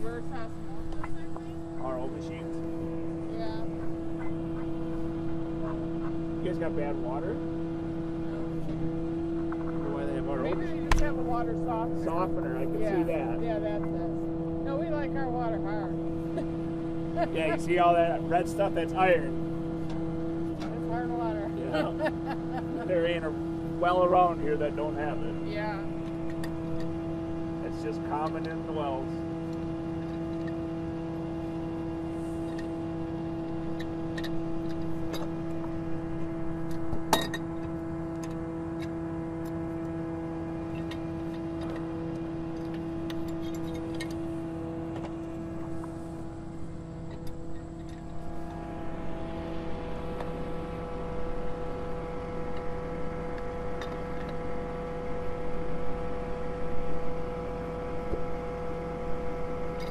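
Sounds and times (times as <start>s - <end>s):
truck engine running: 0.0s - 59.9s.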